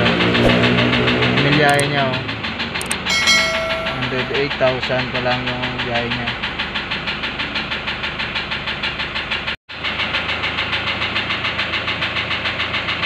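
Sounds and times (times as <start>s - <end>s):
diesel engine idling with knock: 4.7s - 13.0s.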